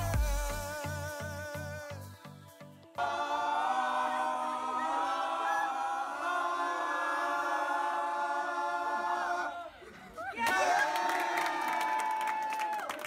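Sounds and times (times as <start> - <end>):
group singing a cappella: 0.0 - 10.2.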